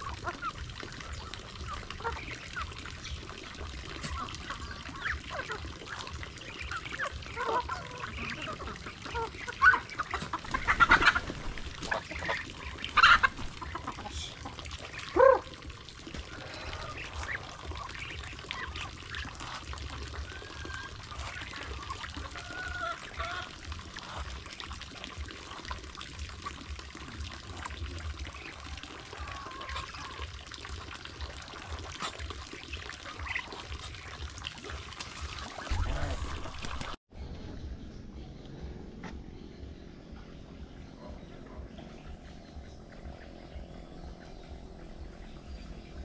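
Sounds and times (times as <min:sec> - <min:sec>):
ducks honking: 0:00.0 - 0:26.7, 0:27.5 - 0:37.0
water trickling into trough: 0:00.0 - 0:37.0
chickens clucking: 0:03.8 - 0:15.5, 0:16.1 - 0:24.3, 0:31.9 - 0:34.3.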